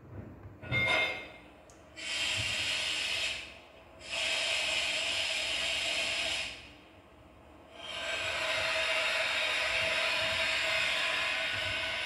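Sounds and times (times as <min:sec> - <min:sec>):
compressed air hiss: 0:02.0 - 0:06.9, 0:07.7 - 0:12.0.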